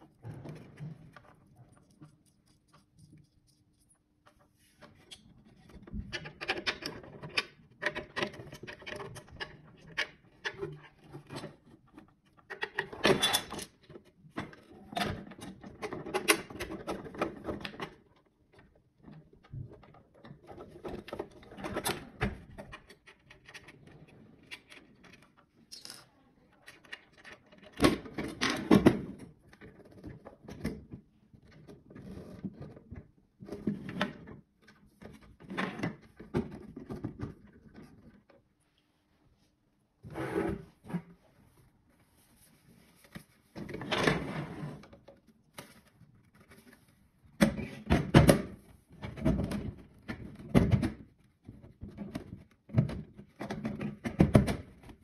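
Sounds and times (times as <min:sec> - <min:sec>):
plastic parts knocking and clicking: 0:04.8 - 0:26.0, 0:47.4 - 0:55.0.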